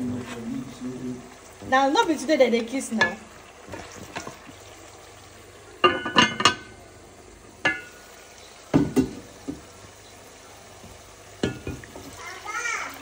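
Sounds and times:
cookware knocking and clinking: 5.8s - 6.8s, 7.6s - 7.9s, 11.4s - 12.0s.

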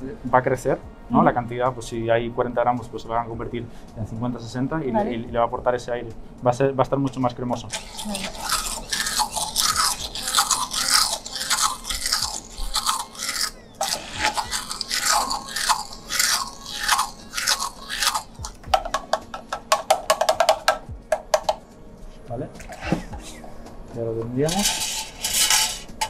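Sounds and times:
immersion blender running: 7.7s - 18.6s.

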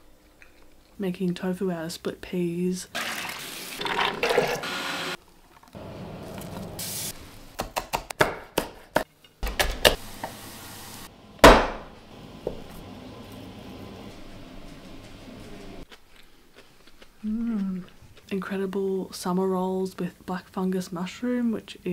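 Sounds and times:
water pouring into blender jug: 3.0s - 4.7s.

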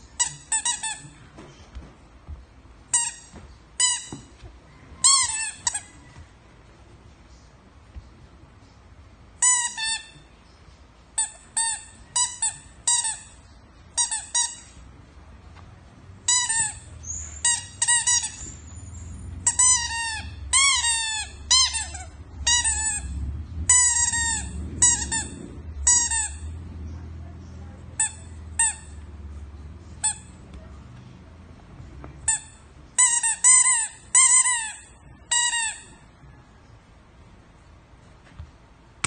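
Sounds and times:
squeaky toy ball squeaking: 0.1s - 1.1s, 2.9s - 4.4s, 5.0s - 6.0s, 9.4s - 10.2s, 11.2s - 14.8s, 16.3s - 26.5s, 28.0s - 29.0s, 30.0s - 30.4s, 32.2s - 36.0s.

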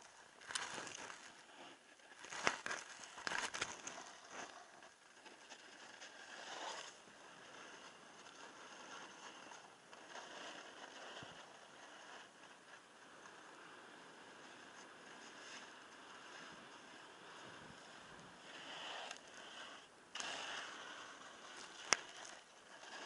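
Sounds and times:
ski edges scraping snow: 0.0s - 23.0s
skis hissing on snow: 13.5s - 23.0s.

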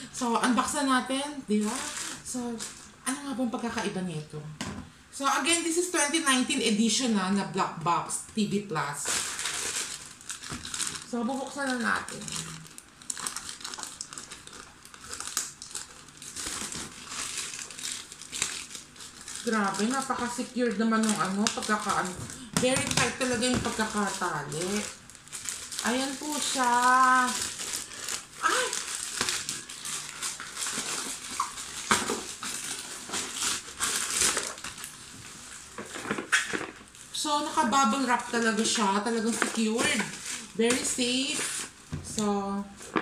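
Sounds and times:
plastic ripping: 1.5s - 2.9s, 9.0s - 43.0s
plastic pouch crinkling: 1.6s - 3.0s, 9.0s - 41.8s.

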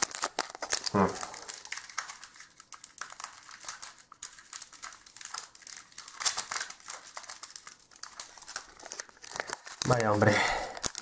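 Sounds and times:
foil wrapper crinkling: 0.0s - 11.0s.

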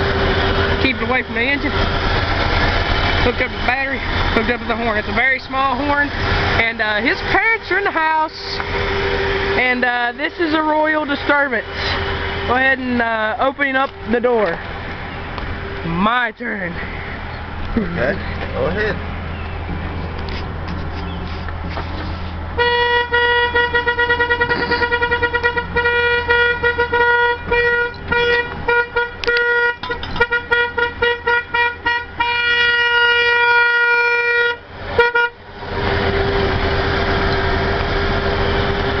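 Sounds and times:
high-pitched car horn honking: 22.6s - 35.4s.

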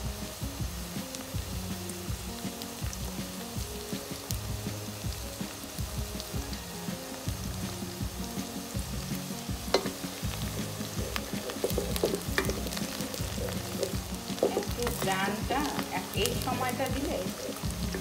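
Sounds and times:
onions sizzling in oil: 0.0s - 18.0s
spatula stirring pot: 9.7s - 18.0s.

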